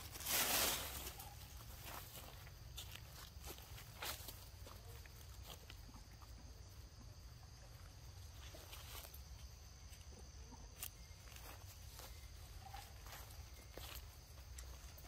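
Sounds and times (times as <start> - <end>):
footsteps on dry leaves: 0.0 - 5.7, 10.8 - 15.0.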